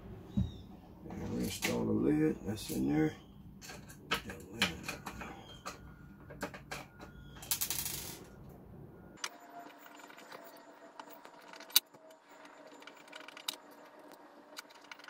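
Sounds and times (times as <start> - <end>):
parts rattling: 3.6 - 8.4, 9.2 - 15.0.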